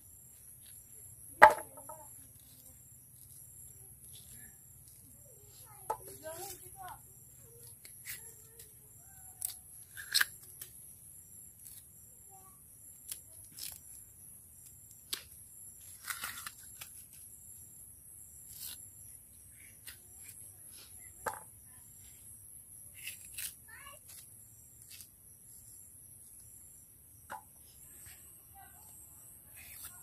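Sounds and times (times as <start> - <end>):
bamboo sheath tearing and snapping: 9.3 - 10.8, 13.0 - 14.0, 15.0 - 17.2, 18.4 - 18.9, 23.0 - 25.1.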